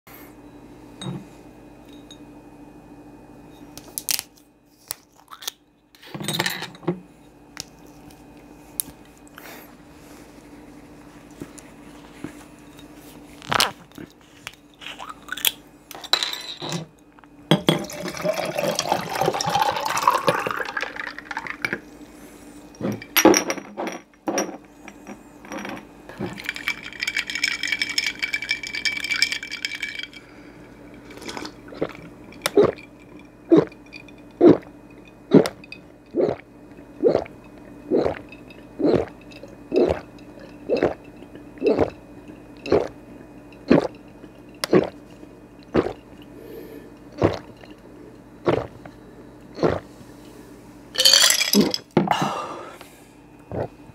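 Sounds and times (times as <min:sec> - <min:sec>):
glass clinking: 0:01.0 - 0:01.2, 0:25.5 - 0:30.3, 0:51.0 - 0:51.9
drink pouring over ice: 0:17.8 - 0:21.6, 0:26.3 - 0:30.3
swallowing gulps: 0:31.2 - 0:32.9, 0:33.5 - 0:33.8, 0:35.3 - 0:42.0, 0:42.6 - 0:43.0, 0:43.6 - 0:44.0, 0:44.6 - 0:45.0, 0:45.6 - 0:46.4, 0:47.0 - 0:47.8, 0:48.4 - 0:48.9, 0:49.5 - 0:49.9, 0:53.5 - 0:53.8.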